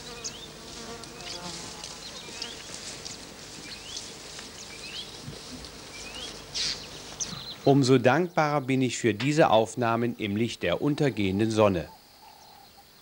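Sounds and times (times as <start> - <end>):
buzzing insects: 0.0 - 7.4.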